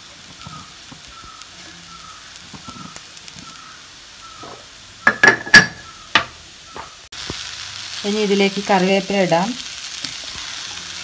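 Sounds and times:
onions sizzling in a pan: 0.0s - 11.0s
wooden spatula knocking on pan: 4.4s - 6.9s.

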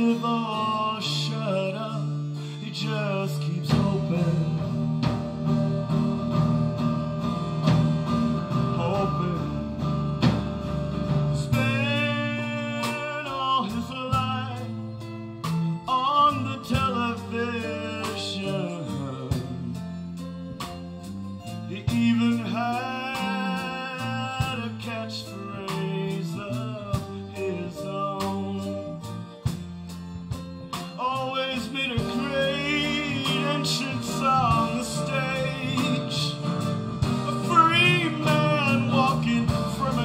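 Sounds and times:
man singing: 0.0s - 10.2s, 11.1s - 20.8s, 21.4s - 29.7s, 30.7s - 40.0s
drums: 0.0s - 40.0s
electric bass: 0.0s - 40.0s
keyboard: 0.0s - 40.0s
strummed acoustic guitar: 0.0s - 40.0s.

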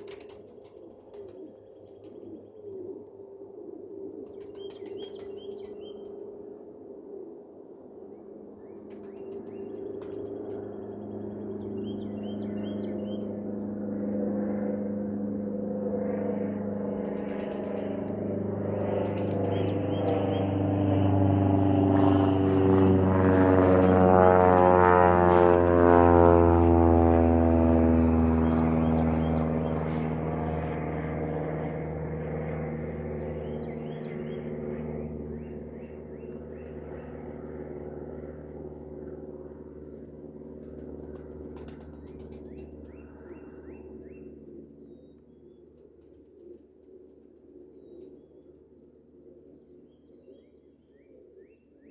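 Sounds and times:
engine drone: 0.0s - 51.9s
low mechanical hum: 0.0s - 51.9s
bird chirps: 4.2s - 6.2s, 8.6s - 13.3s, 42.1s - 45.6s.

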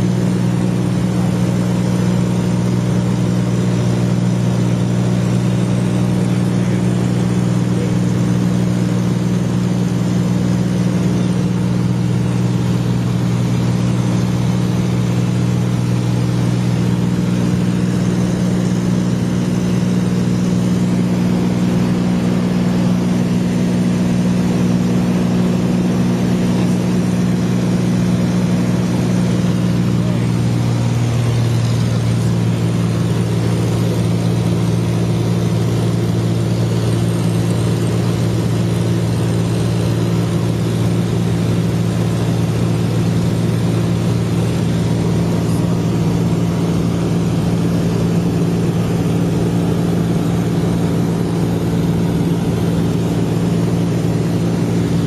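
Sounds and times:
light aircraft engine droning: 0.0s - 55.0s.

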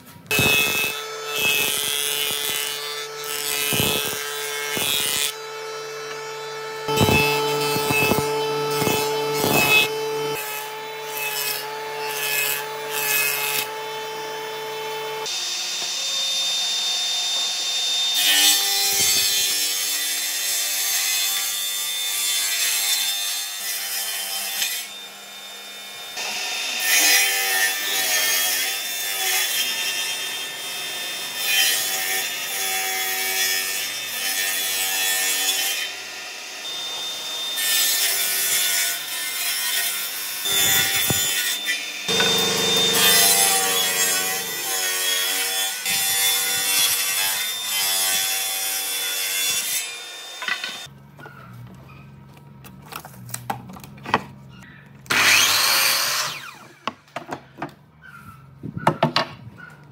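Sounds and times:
jointer machine hum: 0.3s - 12.0s, 40.5s - 47.0s
table saw ripping boards: 0.3s - 14.4s, 31.1s - 50.9s, 55.1s - 57.6s.

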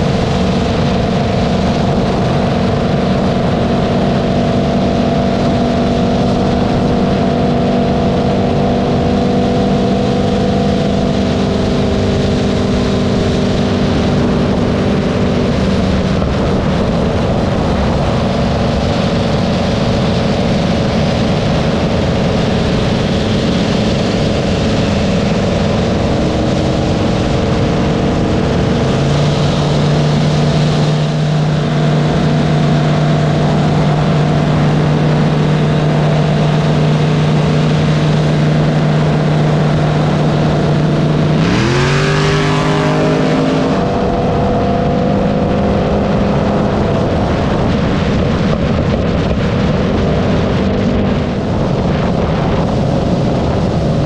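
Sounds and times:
car engine droning at cruise: 0.0s - 54.0s
wind rush: 0.0s - 54.0s.

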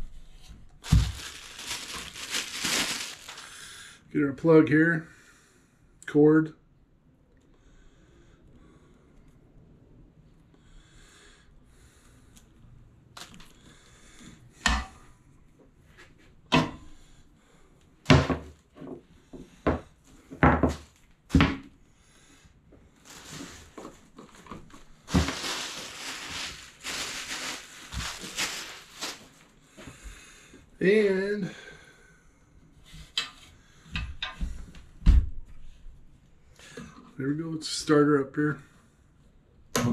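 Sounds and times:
rustling: 0.2s - 3.5s, 23.0s - 29.5s.

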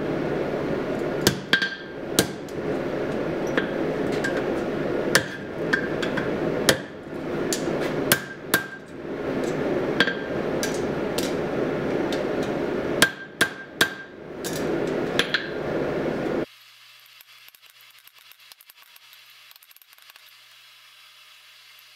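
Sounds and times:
forge rushing noise: 0.0s - 16.5s
hammer striking metal on anvil: 1.2s - 2.6s, 3.4s - 11.4s, 13.0s - 15.6s.

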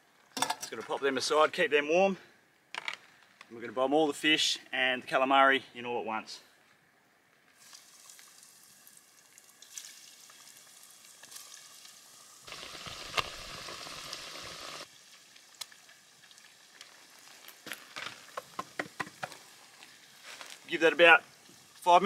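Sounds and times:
food sizzling in hot oil: 7.6s - 21.9s
sharp clicks and pops: 12.5s - 14.5s.

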